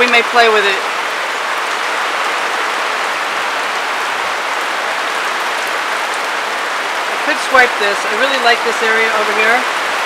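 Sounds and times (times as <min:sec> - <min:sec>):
heavy rain: 0:00.0 - 0:10.0.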